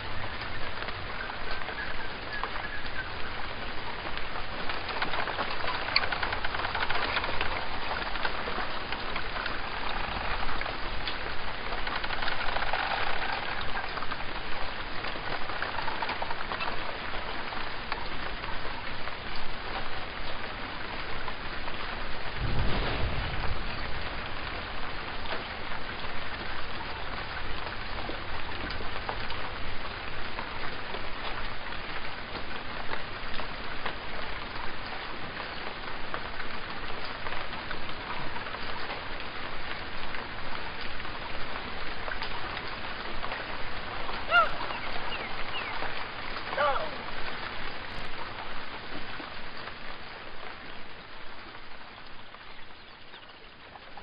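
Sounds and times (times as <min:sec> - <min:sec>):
rain pattering: 0:00.0 - 0:54.0
low rumble: 0:22.4 - 0:25.0.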